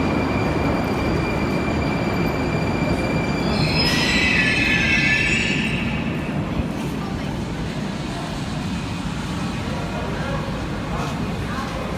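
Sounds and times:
wheels squealing on rails: 0:00.0 - 0:07.0
metro train rumbling: 0:00.0 - 0:11.9.

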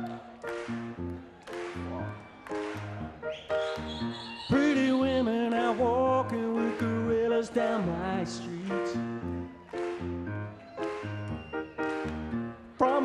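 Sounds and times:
grand piano playing chords: 0:00.0 - 0:13.0
man singing long notes: 0:04.4 - 0:09.2.

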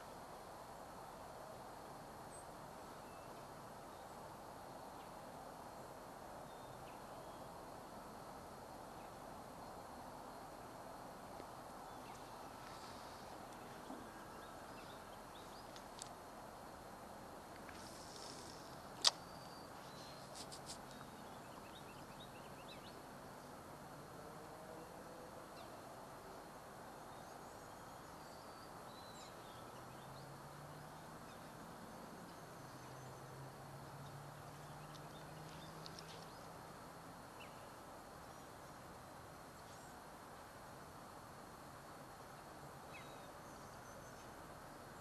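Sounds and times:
faint steady hiss: 0:00.0 - 0:45.0
sharp click: 0:19.0 - 0:19.4
light ticks: 0:34.8 - 0:36.6.

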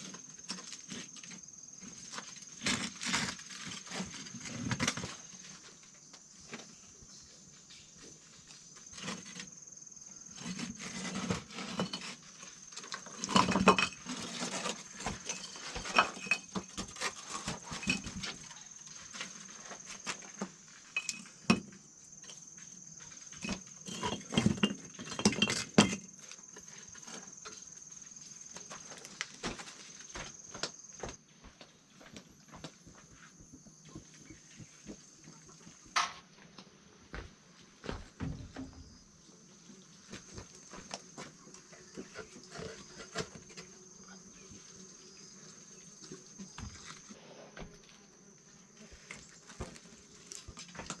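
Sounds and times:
objects tapping and clinking: 0:23.4 - 0:26.1.

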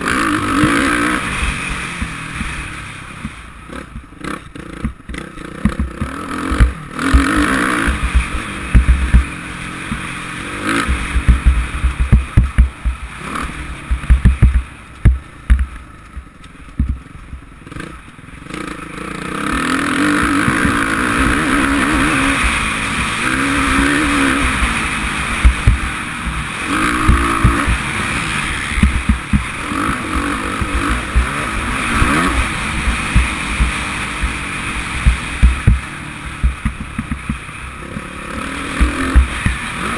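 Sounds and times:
motocross engine revving: 0:00.0 - 0:15.7, 0:16.8 - 0:39.9
bumps thumping on microphone: 0:04.8 - 0:09.3, 0:10.9 - 0:13.0, 0:13.9 - 0:17.0, 0:25.4 - 0:25.9, 0:28.8 - 0:29.5, 0:35.0 - 0:37.4, 0:38.8 - 0:39.6.

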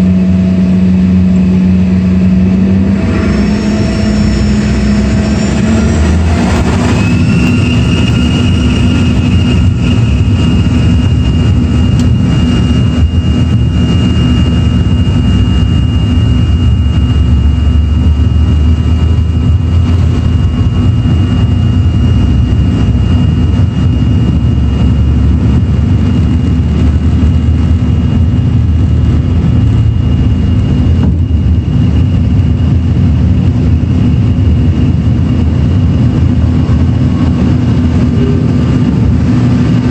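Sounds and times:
deep engine rumble: 0:00.0 - 0:39.9
jet engine whine: 0:00.0 - 0:39.9.

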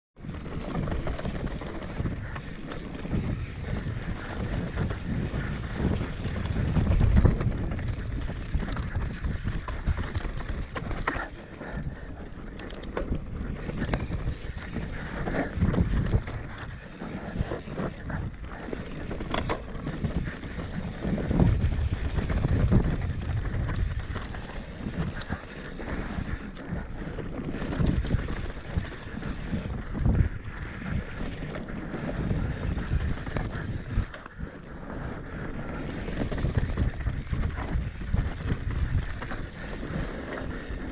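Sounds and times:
bike knocking and rattling: 0:00.2 - 0:40.9
bike tyres rolling over dirt: 0:00.2 - 0:40.9
wind on microphone: 0:00.2 - 0:40.9
sharp clicks: 0:12.5 - 0:13.2.

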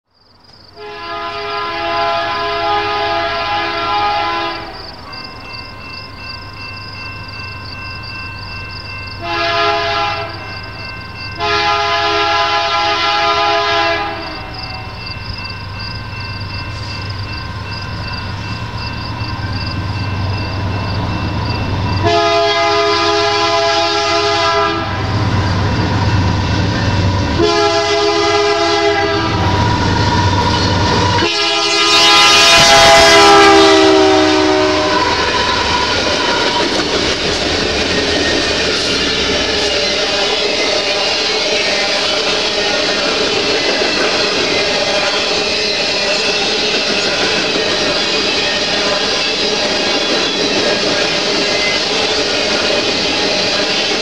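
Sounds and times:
locomotive air horn blasts: 0:00.8 - 0:04.8, 0:09.2 - 0:10.5, 0:11.4 - 0:15.0, 0:22.0 - 0:25.3, 0:27.4 - 0:35.9.

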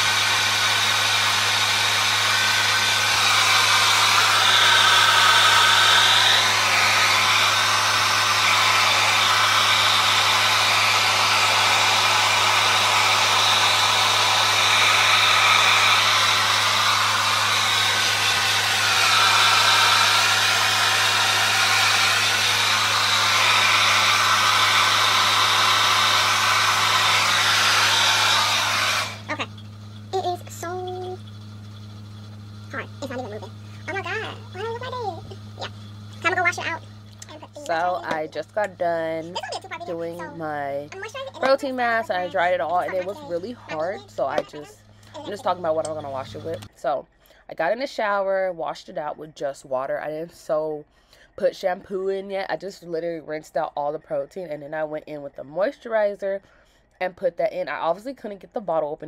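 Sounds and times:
hair dryer blowing: 0:00.0 - 0:46.7.

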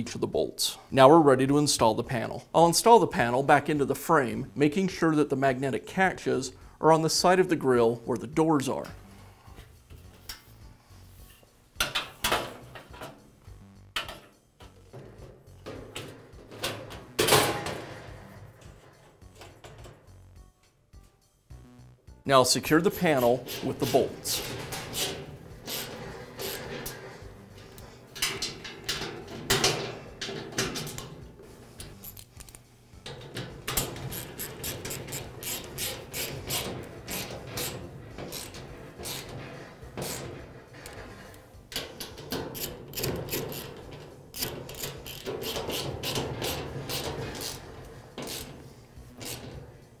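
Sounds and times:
ratchet wrench clicking: 0:34.1 - 0:37.7, 0:42.5 - 0:43.8, 0:44.4 - 0:47.6, 0:48.2 - 0:48.5, 0:49.1 - 0:49.4.

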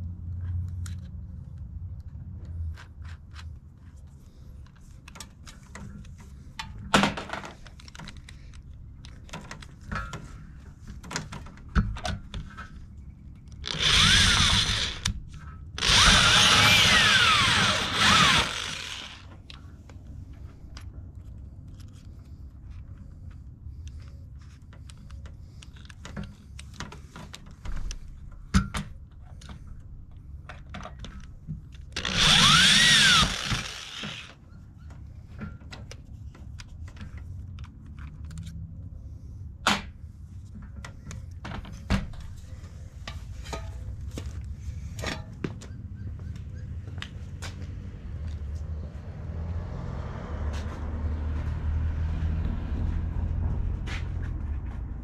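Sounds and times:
power drill whirring: 0:13.6 - 0:15.2, 0:15.8 - 0:19.3, 0:32.0 - 0:34.4.

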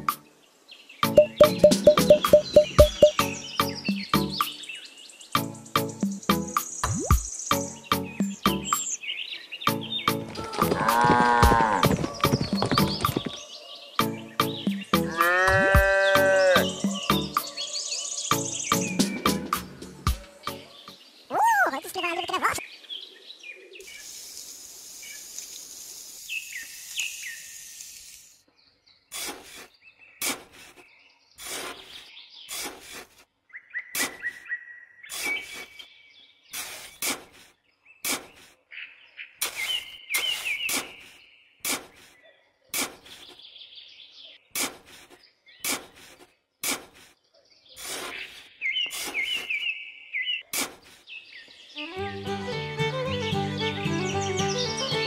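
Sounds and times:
birds chirping: 0:00.0 - 0:24.2, 0:28.5 - 0:32.8, 0:33.5 - 0:55.0
stick scratching sand: 0:29.1 - 0:33.3, 0:34.0 - 0:34.4, 0:35.1 - 0:35.8, 0:36.6 - 0:38.6, 0:39.4 - 0:43.4, 0:44.6 - 0:47.2, 0:47.8 - 0:49.6, 0:50.5 - 0:51.0
trowel digging damp sand: 0:29.1 - 0:33.3, 0:34.0 - 0:34.4, 0:35.1 - 0:35.8, 0:36.5 - 0:38.6, 0:39.4 - 0:43.4, 0:44.5 - 0:47.2, 0:47.8 - 0:49.7, 0:50.5 - 0:51.1.

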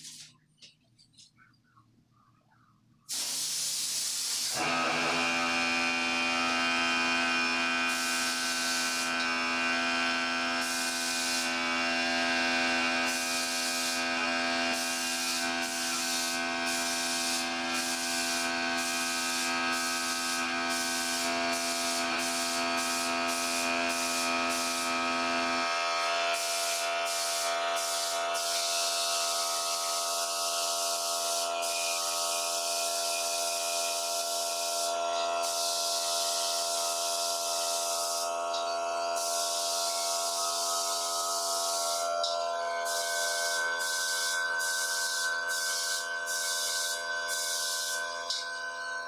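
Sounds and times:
spray gun hissing: 0:03.1 - 0:05.5, 0:07.7 - 0:09.4, 0:10.5 - 0:25.5, 0:26.2 - 0:32.0, 0:34.7 - 0:38.4, 0:39.2 - 0:42.1, 0:42.9 - 0:48.0
air compressor humming: 0:03.1 - 0:48.4.

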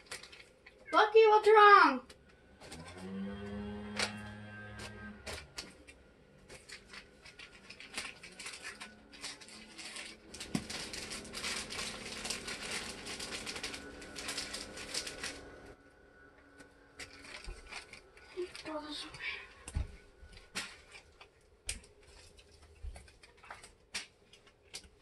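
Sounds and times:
food packaging crackling: 0:00.0 - 0:00.9, 0:05.2 - 0:15.8, 0:17.0 - 0:19.0, 0:20.5 - 0:25.0.

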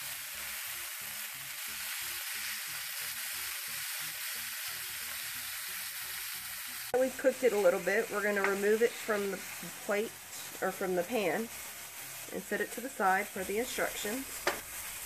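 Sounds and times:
chicken sizzling in oil: 0:00.0 - 0:15.0.

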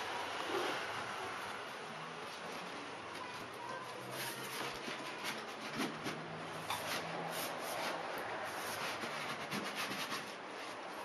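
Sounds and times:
cardboard scraping and rubbing: 0:03.2 - 0:11.0.

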